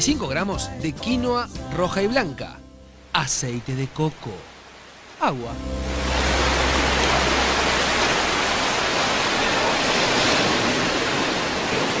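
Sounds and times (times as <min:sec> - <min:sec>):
low hum: 0:05.5 - 0:11.0
steady rushing noise: 0:05.5 - 0:12.0.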